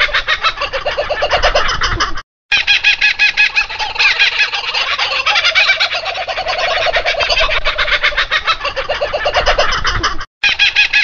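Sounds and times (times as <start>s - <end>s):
nestling birds begging calls: 2.5s - 11.0s.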